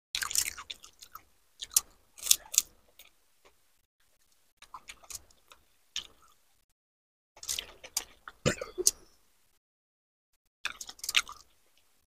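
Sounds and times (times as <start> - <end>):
wet chewing clicks: 0.2 - 3.6, 4.6 - 6.4, 7.4 - 9.1, 10.7 - 11.9
crisp shell crunching: 10.7 - 11.6.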